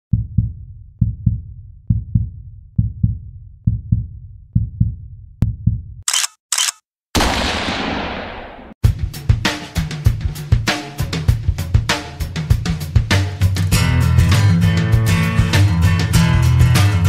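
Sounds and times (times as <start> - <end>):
heartbeat thumps: 0.1 - 6.0
short sharp clicks: 6.1 - 6.8
loud gunshot: 7.2 - 8.8.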